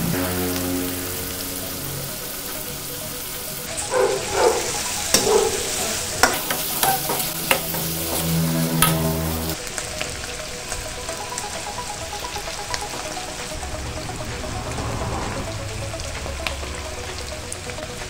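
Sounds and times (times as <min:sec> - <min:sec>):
meat sizzling in a wok: 0:00.1 - 0:12.0
metal ladle scraping a wok: 0:04.6 - 0:09.6.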